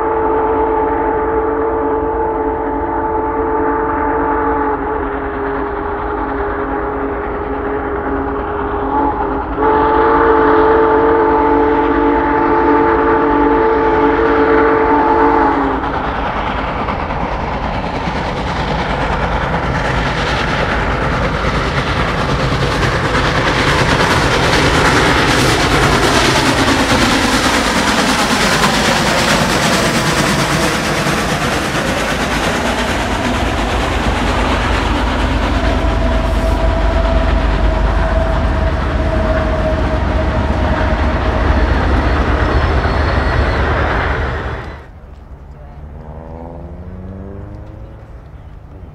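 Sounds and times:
steam locomotive chime whistle: 0.0 - 15.8, 35.6 - 46.3
rush of exhaust and wheels: 15.7 - 48.9.

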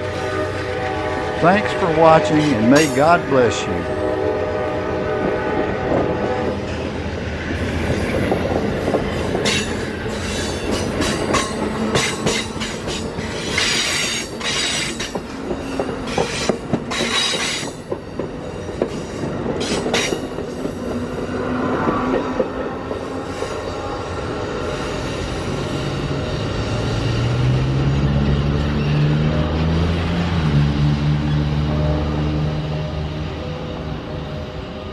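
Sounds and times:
train rail rumble: 0.0 - 34.9
wheels clicking over rail joints: 7.9 - 23.0.

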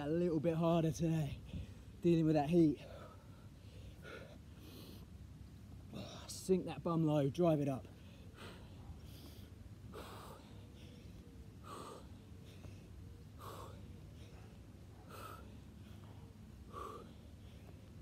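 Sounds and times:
man breathing hard: 2.8 - 5.2, 7.9 - 18.0.

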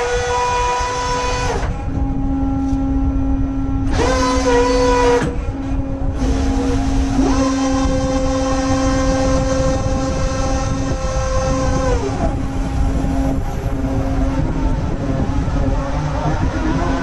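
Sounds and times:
low machinery hum and rumble: 0.0 - 17.0
winch motor whining: 0.0 - 17.0.

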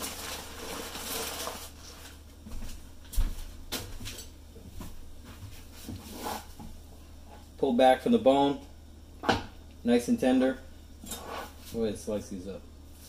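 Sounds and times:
paper rustling: 0.0 - 2.2.

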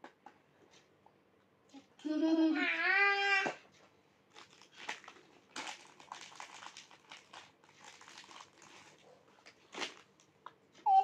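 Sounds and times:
plastic snack wrapper crinkling: 4.3 - 10.5.

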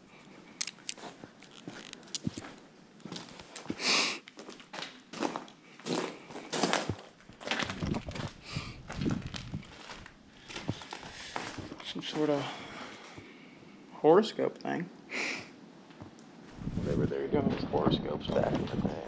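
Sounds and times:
footsteps crunching on rubble: 0.4 - 13.2.

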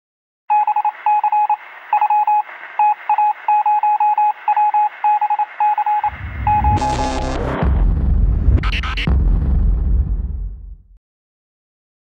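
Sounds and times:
short electronic beeps: 0.5 - 7.4.

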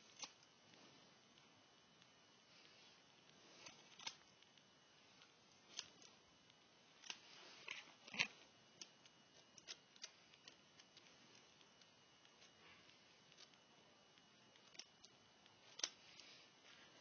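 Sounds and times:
scissors snipping hair: 0.0 - 0.5, 3.6 - 4.7, 7.0 - 12.6, 13.2 - 16.0.

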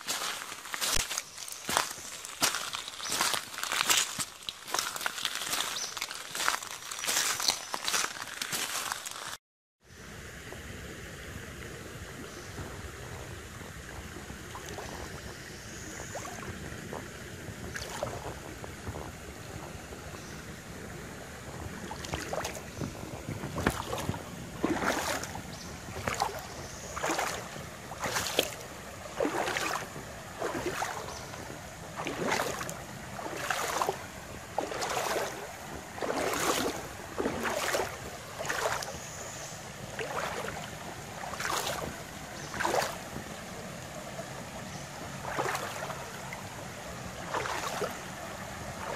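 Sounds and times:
creek water running over rocks: 0.0 - 9.4, 11.6 - 48.9
feet splashing through water: 0.0 - 9.4, 14.4 - 15.3, 16.0 - 16.6, 17.6 - 18.5, 21.6 - 48.9.

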